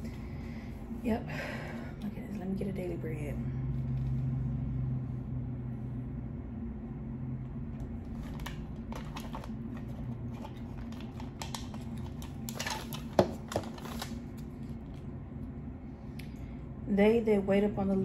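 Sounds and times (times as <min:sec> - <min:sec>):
low hum: 0:00.0 - 0:18.0
cards rustling and clicking: 0:08.0 - 0:15.0.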